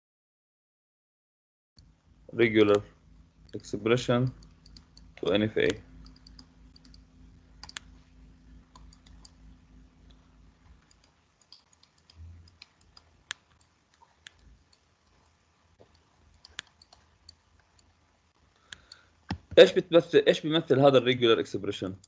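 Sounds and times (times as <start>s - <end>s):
low hum: 1.8s - 19.7s
stylus tapping on tablet screen: 18.8s - 19.6s.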